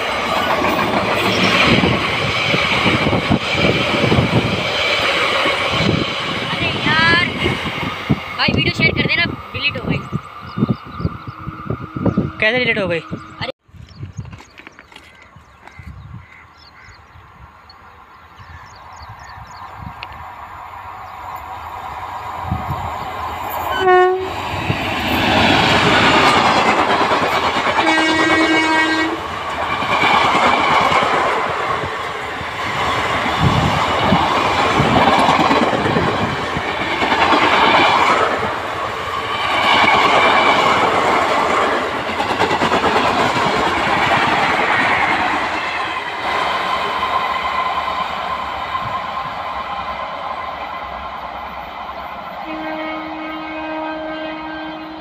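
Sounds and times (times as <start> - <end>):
locomotive horn: 23.7 - 24.4, 27.8 - 29.2, 52.4 - 55.0.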